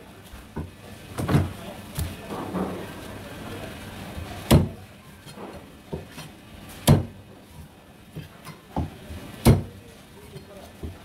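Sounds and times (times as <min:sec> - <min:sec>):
knife chopping into wooden block: 0:06.8 - 0:07.1, 0:08.8 - 0:09.7.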